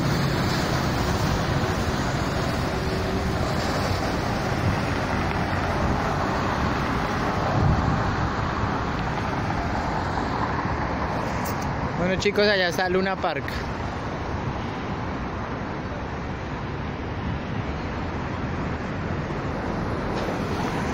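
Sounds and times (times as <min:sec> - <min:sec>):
wind on microphone: 0:00.0 - 0:12.0
city street traffic: 0:00.0 - 0:20.9.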